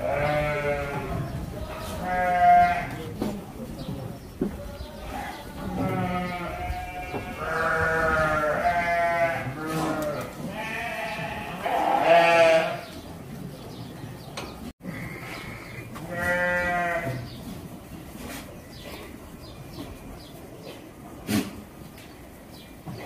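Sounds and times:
goats bleating: 0.0s - 3.0s, 4.6s - 13.0s, 16.0s - 17.3s.

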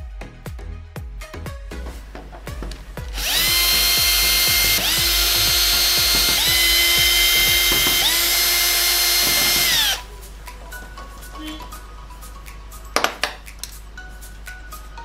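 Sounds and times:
cordless drill motor whine: 3.1s - 10.0s.

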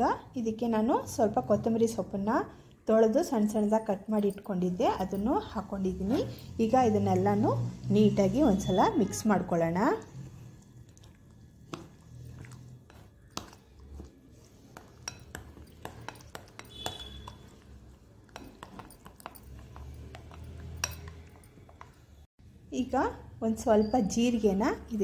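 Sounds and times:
spoon stirring thick batter: 0.4s - 22.3s
spoon clinking against glass: 14.8s - 22.0s.

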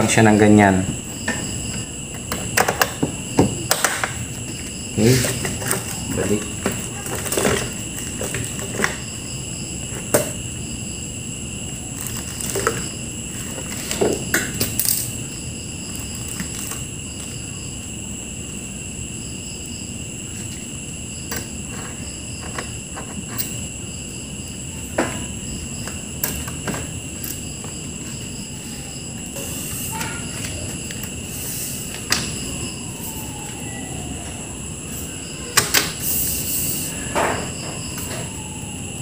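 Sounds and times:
insect chirring with pulsing trill: 0.0s - 39.0s.

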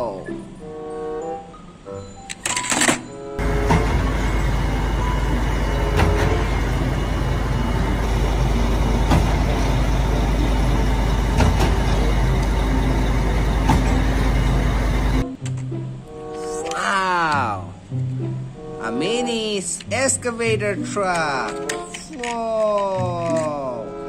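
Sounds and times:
concrete mixer truck rumbling: 3.4s - 15.2s
machinery knocks: 3.4s - 15.2s.

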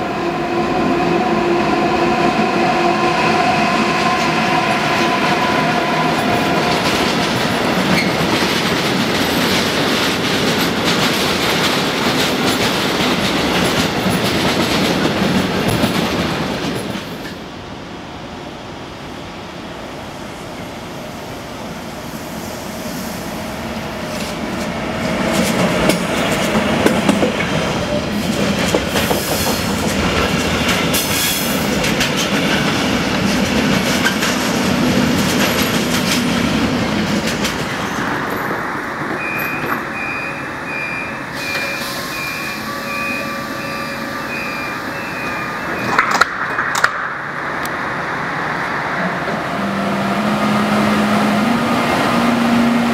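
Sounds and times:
freight train passing: 0.0s - 52.9s.

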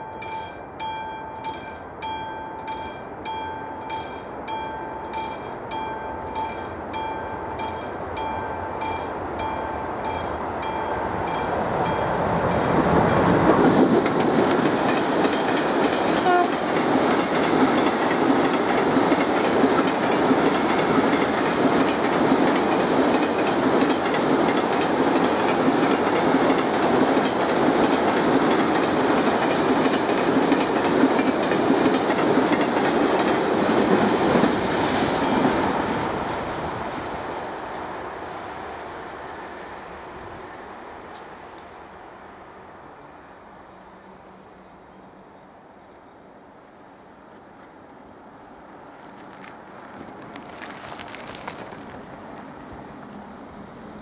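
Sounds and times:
freight train rolling past: 0.0s - 54.0s
wheels clickety-clack over rails: 8.9s - 36.7s, 49.0s - 53.2s.

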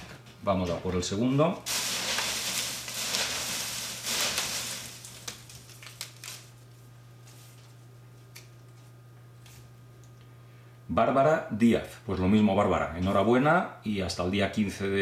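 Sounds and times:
shredded paper rustling: 1.7s - 6.6s
paper slip crinkling: 1.7s - 9.7s.

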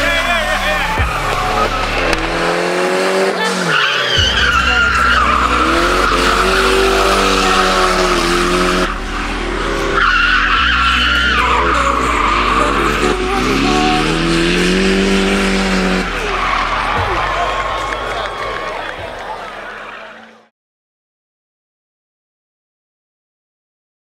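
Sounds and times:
tyres squealing: 0.0s - 18.9s
car engine revving: 0.0s - 20.4s.

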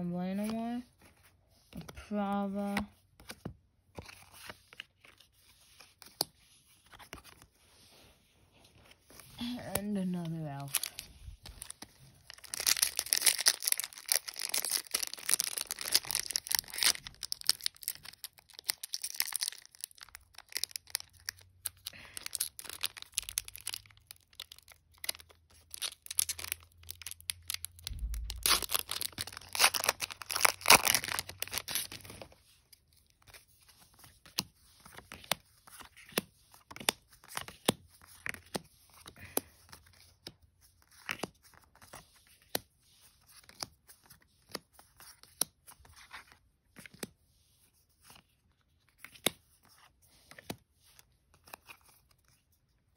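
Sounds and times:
cards being handled: 2.6s - 52.6s
wrapper crinkling: 10.4s - 32.4s.

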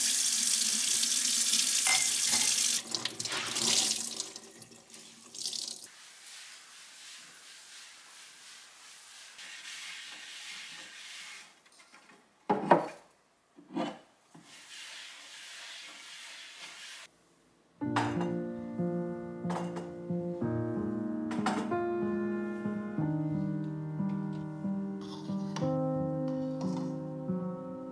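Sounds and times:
tap water running into sink: 0.0s - 5.9s.

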